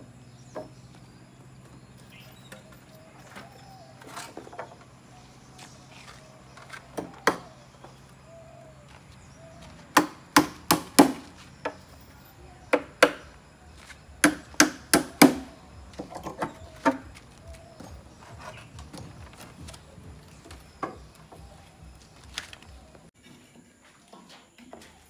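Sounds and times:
hammer driving nails into wood: 0:14.2 - 0:15.5.

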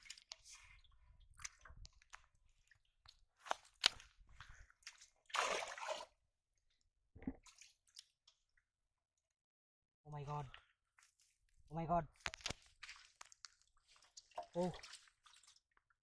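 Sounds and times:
squelching in muddy water: 0:00.0 - 0:06.2, 0:07.3 - 0:08.2, 0:12.2 - 0:15.8
loud splash: 0:05.3 - 0:06.0.

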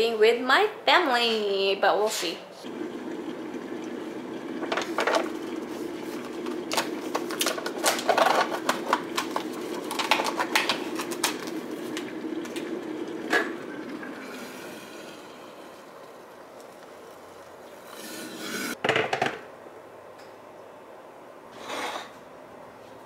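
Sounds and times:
steady low hum: 0:02.4 - 0:17.7.

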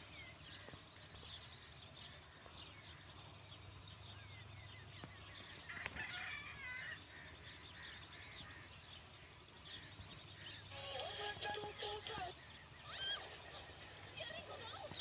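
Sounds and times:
birds chirping: 0:00.0 - 0:15.0.

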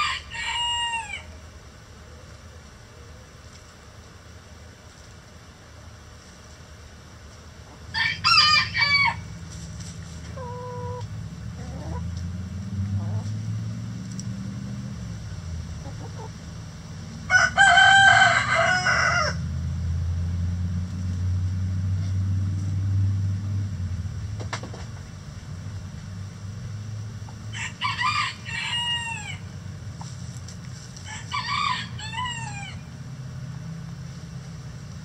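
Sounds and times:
rooster crowing: 0:00.0 - 0:01.3, 0:07.9 - 0:09.4, 0:17.2 - 0:19.5, 0:27.5 - 0:29.5, 0:31.0 - 0:32.9
low steady hum: 0:00.0 - 0:35.0
chicken call: 0:10.4 - 0:12.0.

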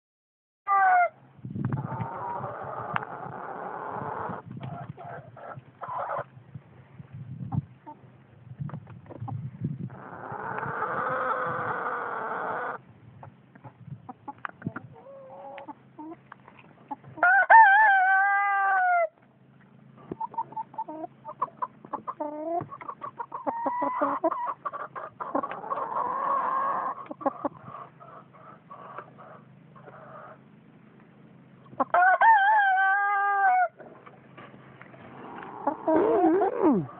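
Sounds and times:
roosters crowing: 0:00.7 - 0:01.2, 0:10.0 - 0:12.8, 0:17.2 - 0:19.2, 0:23.3 - 0:30.4, 0:31.8 - 0:34.0, 0:35.1 - 0:36.9
chickens clucking: 0:00.7 - 0:36.9.

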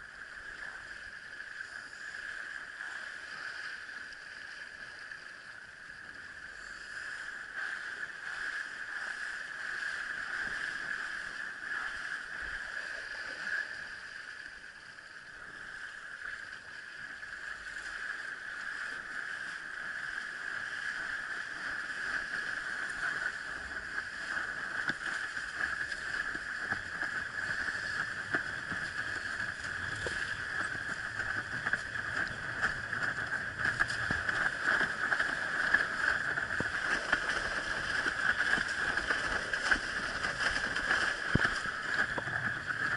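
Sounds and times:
rush of wind and water: 0:00.0 - 0:42.9
board slapping on choppy water: 0:17.4 - 0:42.9.

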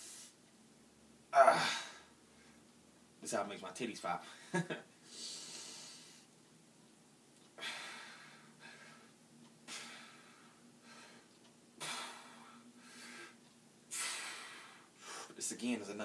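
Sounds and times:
man breathing hard: 0:05.0 - 0:06.3, 0:07.6 - 0:15.4.

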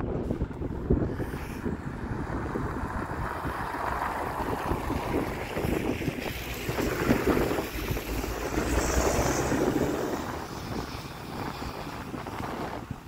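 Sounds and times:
bus tyres on wet road: 0:00.0 - 0:13.0
wind buffeting microphone: 0:00.0 - 0:13.0.

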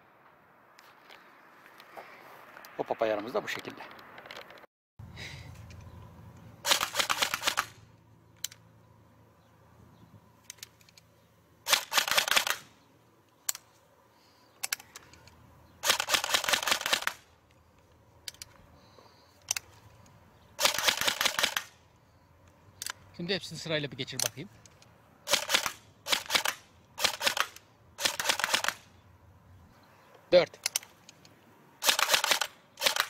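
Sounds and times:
airsoft gun firing bursts: 0:06.6 - 0:07.8, 0:11.6 - 0:12.7, 0:15.8 - 0:17.2, 0:20.6 - 0:21.8, 0:25.3 - 0:28.9, 0:31.8 - 0:33.0.

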